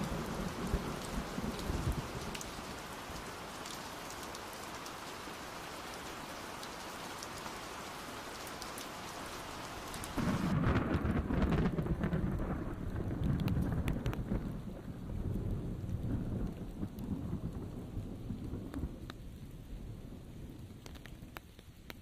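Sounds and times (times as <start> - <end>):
low rumble of thunder: 0.0 - 2.5, 10.2 - 21.4
steady rain falling: 0.0 - 22.0.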